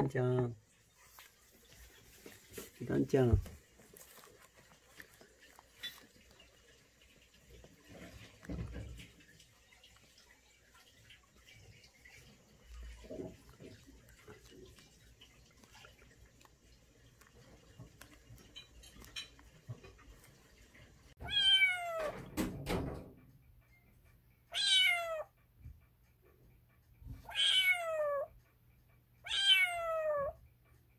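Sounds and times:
kitten mewing: 0:21.2 - 0:22.1, 0:24.5 - 0:25.3, 0:27.2 - 0:28.3, 0:29.3 - 0:30.4.

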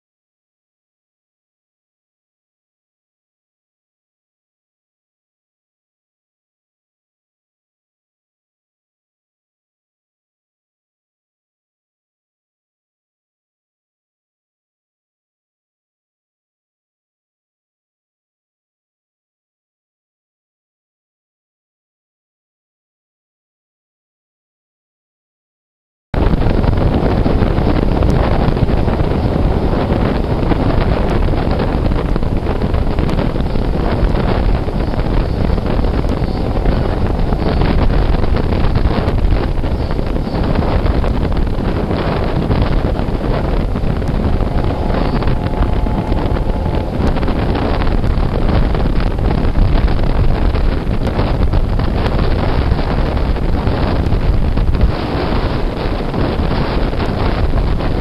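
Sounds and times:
train rumbling on rails: 0:26.2 - 0:58.0
wind buffeting microphone: 0:26.2 - 0:58.0.

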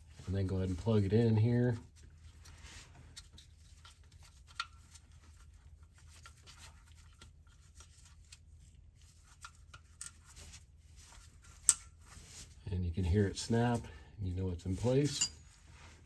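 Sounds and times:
plastic connector handling: 0:03.1 - 0:12.0.

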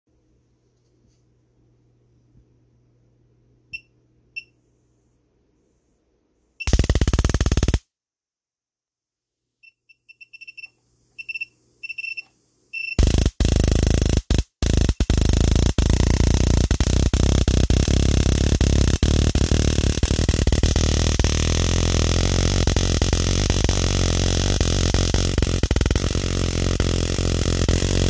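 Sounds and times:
high-voltage arc buzzing: 0:06.7 - 0:07.8, 0:13.0 - 0:28.0
power supply short beeps: 0:09.6 - 0:13.0.

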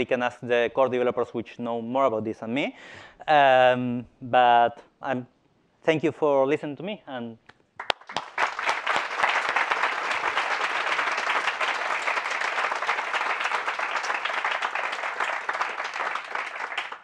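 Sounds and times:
audience applauding: 0:07.8 - 0:17.0.

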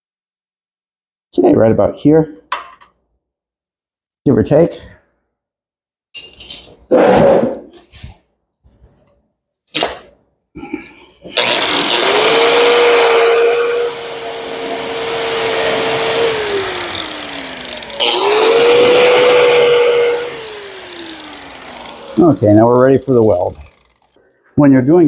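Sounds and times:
angle grinder grinding metal: 0:11.3 - 0:24.2.

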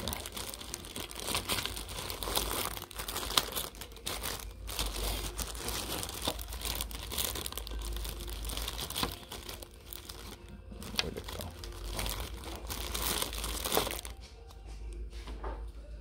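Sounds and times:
plastic bag crinkling: 0:00.0 - 0:14.2.

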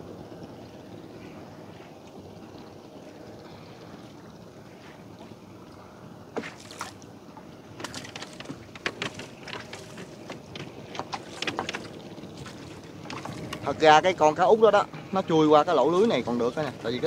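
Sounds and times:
steady low hum: 0:00.0 - 0:17.0
clicks and taps of fishing net: 0:07.8 - 0:13.7.

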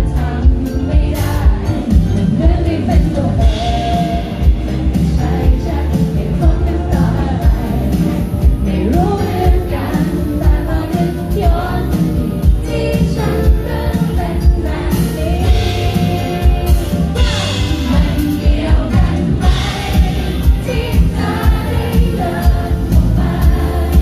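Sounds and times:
woman singing into a microphone: 0:00.0 - 0:24.0
steady beat: 0:14.6 - 0:24.0.

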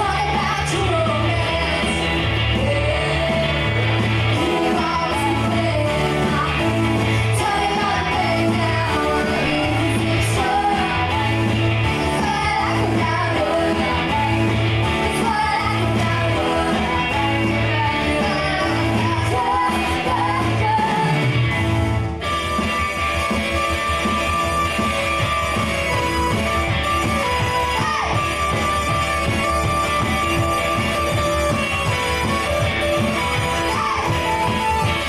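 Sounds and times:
girl singing: 0:00.0 - 0:03.6, 0:04.4 - 0:21.2, 0:33.2 - 0:34.9
live pop-rock band playing: 0:00.0 - 0:35.0.

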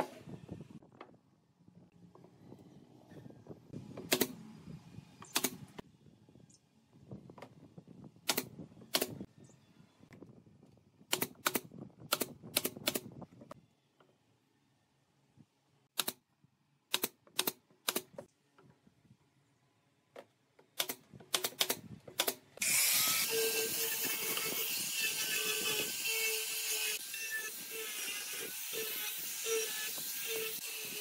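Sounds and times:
angle grinder sanding wood: 0:22.6 - 0:31.0.

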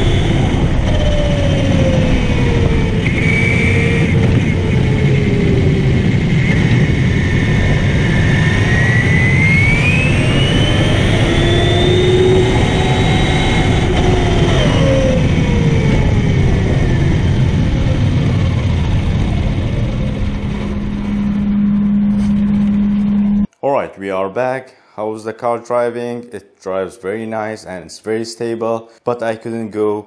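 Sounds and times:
electric motor whine: 0:00.0 - 0:23.5.

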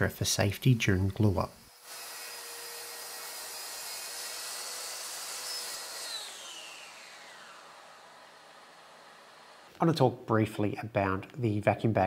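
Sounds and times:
saw whining: 0:00.8 - 0:09.8
saw blade winding down: 0:00.9 - 0:09.8.

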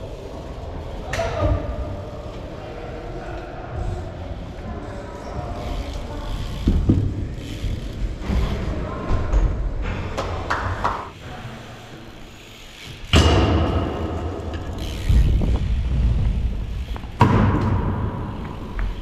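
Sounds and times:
bike tyres rolling on concrete: 0:00.0 - 0:19.0
bike landing impact: 0:12.9 - 0:19.0.

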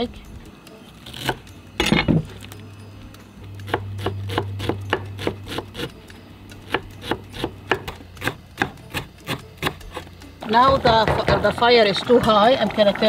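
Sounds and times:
knife chopping on wooden board: 0:03.7 - 0:05.9, 0:06.7 - 0:10.1.

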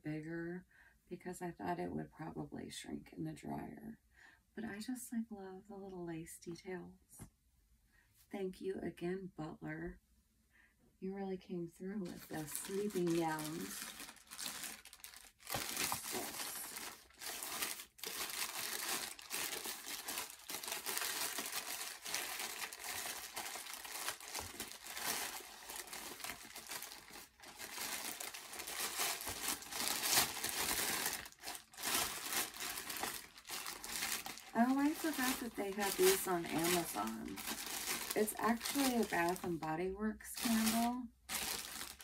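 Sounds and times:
plastic mailer crinkling and tearing: 0:12.0 - 0:39.7, 0:40.3 - 0:42.0.

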